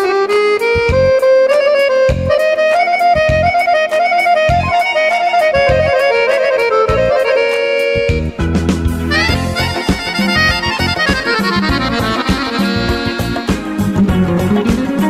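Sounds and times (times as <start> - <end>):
accordion melody: 0.0 - 15.0
bass drum thumps: 8.1 - 15.0.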